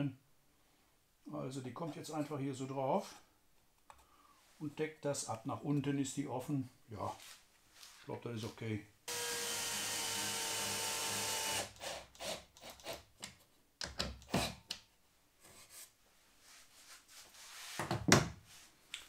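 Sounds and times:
cordless drill driving screw: 9.1s - 13.0s
wooden clicks and knocks: 13.2s - 14.9s.

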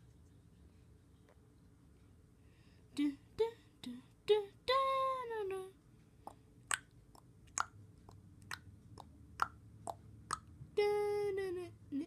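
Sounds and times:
mouth clicks: 6.3s - 10.5s.

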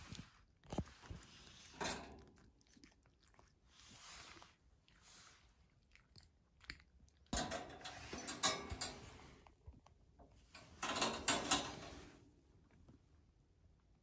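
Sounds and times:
cat litter pellets crunching: 0.0s - 8.1s.

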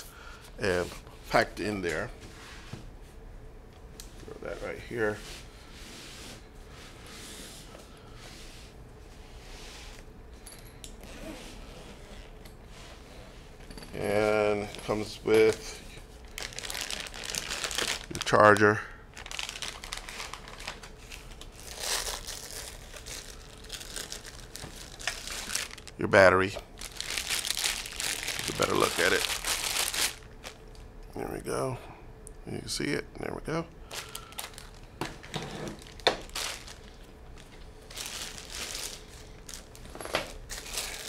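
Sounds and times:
plastic bag crinkling: 14.0s - 30.9s, 33.8s - 41.0s.

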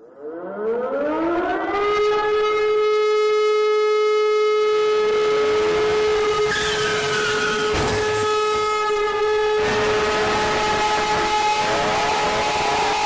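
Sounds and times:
civil defense siren: 0.0s - 13.0s.

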